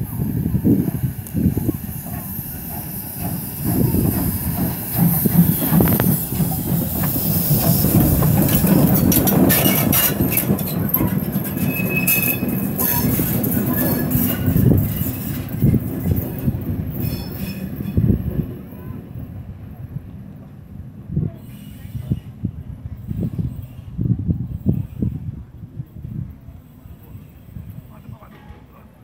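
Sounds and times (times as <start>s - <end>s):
locomotive running rumble: 0.0s - 29.0s
steam hissing: 0.1s - 8.9s
rod and wheel clanks: 4.6s - 15.3s
wheel squeal: 7.1s - 15.4s, 17.0s - 18.1s.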